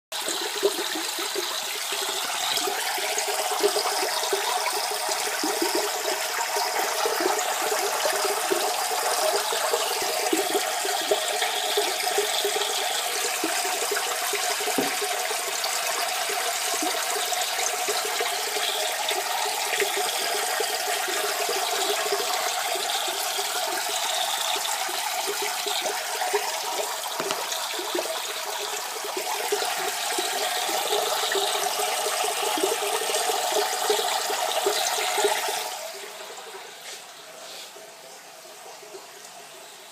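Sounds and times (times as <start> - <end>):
aquarium water splashing and bubbling: 0.1 - 39.9.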